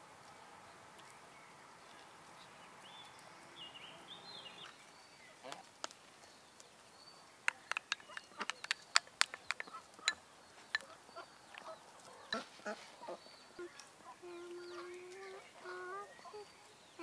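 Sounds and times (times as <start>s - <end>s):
sharp clicks and taps: 7.5s - 10.9s
farm bird long call: 9.6s - 17.0s.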